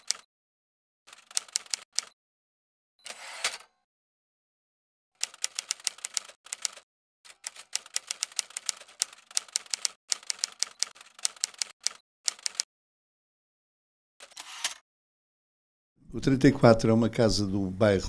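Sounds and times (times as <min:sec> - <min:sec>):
typewriter keys clacking: 0:05.2 - 0:06.8, 0:07.4 - 0:12.6.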